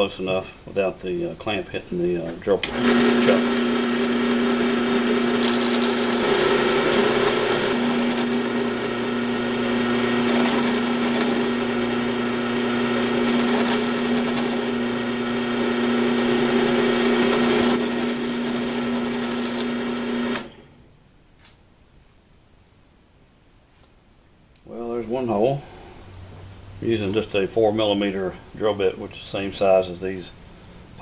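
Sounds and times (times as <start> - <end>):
drill press motor humming: 2.6 - 20.6.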